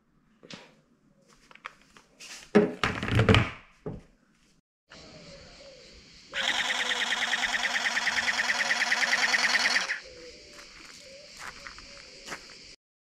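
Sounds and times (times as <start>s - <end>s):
toy water gun motor buzz: 6.4s - 10.0s.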